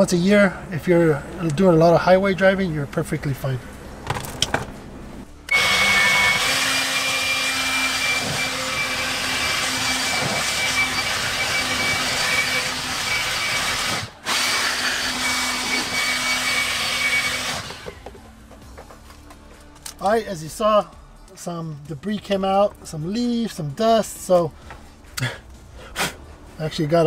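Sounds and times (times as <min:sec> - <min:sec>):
electric air blower whining: 0:05.4 - 0:18.2.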